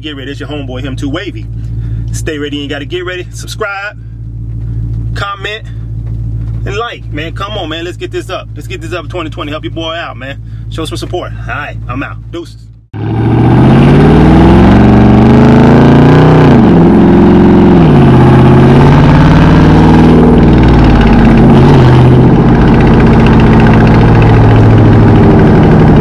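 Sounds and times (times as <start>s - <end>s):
car exhaust revving through gears: 12.9s - 26.0s.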